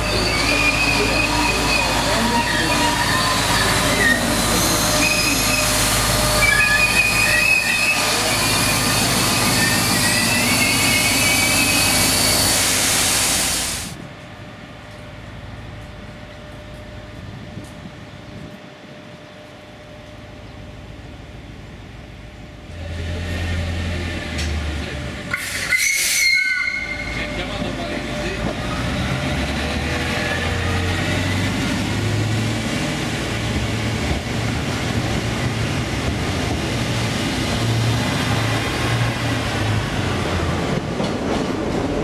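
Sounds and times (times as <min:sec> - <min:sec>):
train wheels squealing: 0:00.0 - 0:12.8, 0:25.3 - 0:27.5
train running noise: 0:00.0 - 0:42.0.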